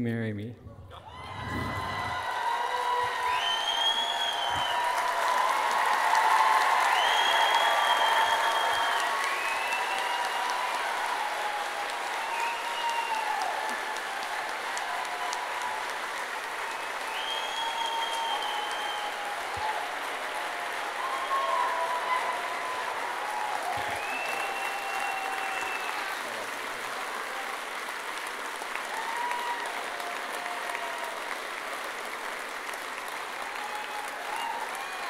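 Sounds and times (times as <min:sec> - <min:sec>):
audience applauding: 0:00.9 - 0:35.0
cheers: 0:00.9 - 0:35.0
whistles: 0:03.0 - 0:05.2, 0:06.6 - 0:10.4, 0:12.2 - 0:13.5, 0:16.7 - 0:19.7, 0:21.0 - 0:22.6, 0:23.6 - 0:26.1.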